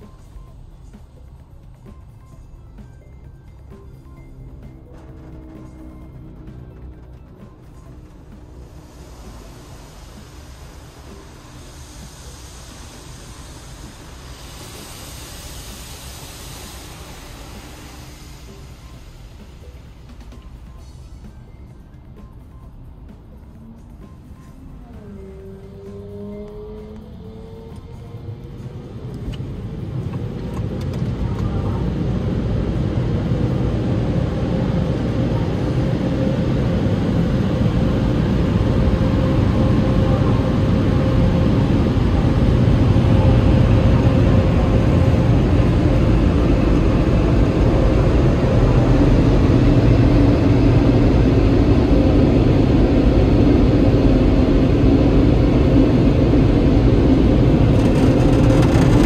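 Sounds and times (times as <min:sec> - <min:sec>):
air-dryer blowers rushing: 0:25.1 - 0:59.0.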